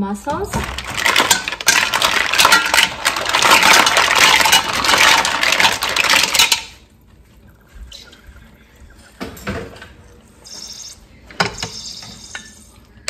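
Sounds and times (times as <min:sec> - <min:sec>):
mussel shells clattering in a pot: 0:00.3 - 0:06.9.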